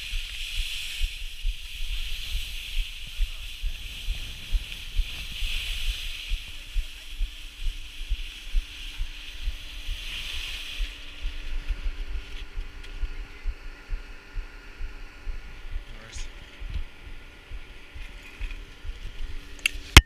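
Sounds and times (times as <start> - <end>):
wind buffeting microphone: 0.0 - 19.6
faint steady hum: 0.0 - 20.0
skis scraping over snow: 0.1 - 12.6.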